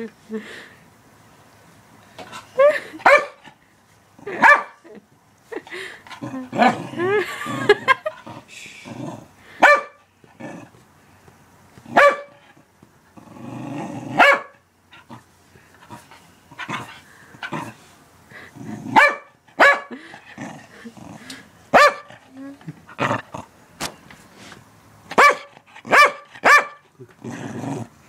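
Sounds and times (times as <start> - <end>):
dog barking: 3.0 - 3.4, 4.4 - 4.8, 9.6 - 10.0, 11.9 - 12.4, 14.2 - 14.6, 18.9 - 19.9, 21.7 - 22.1, 25.1 - 26.8
dog growling: 6.1 - 9.4, 10.3 - 10.8, 13.2 - 14.2, 15.0 - 19.0, 19.9 - 23.6, 27.0 - 28.0.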